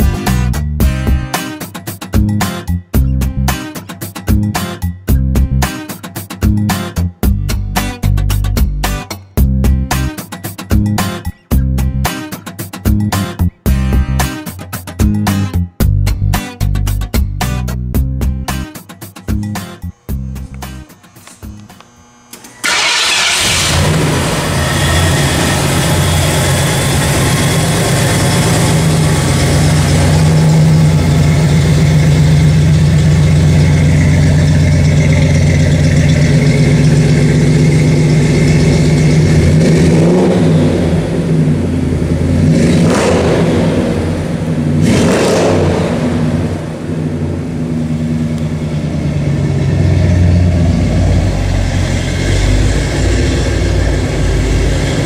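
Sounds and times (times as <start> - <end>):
engine revving: 19.6 - 55.0
truck engine starting and idling: 19.9 - 55.0.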